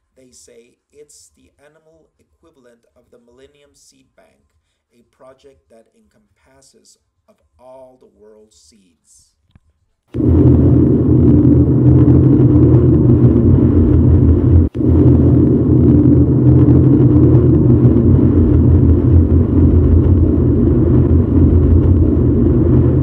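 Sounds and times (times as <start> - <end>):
low rumbling drone: 10.2 - 23.0.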